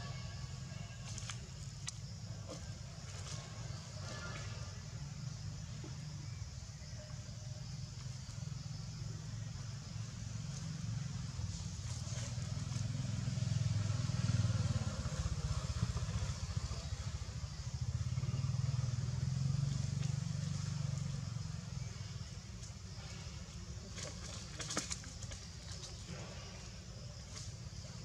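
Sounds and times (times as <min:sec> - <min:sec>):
vehicle engine running: 0:07.2 - 0:28.0.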